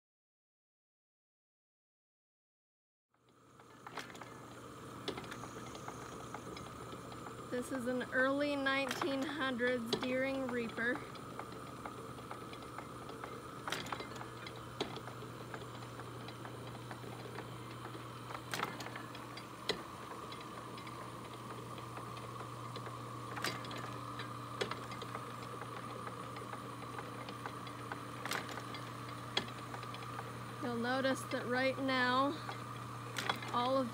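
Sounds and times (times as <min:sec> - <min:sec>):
steady low hum: 0:03.2 - 0:33.9
reaper rake arms knocking: 0:05.0 - 0:30.4.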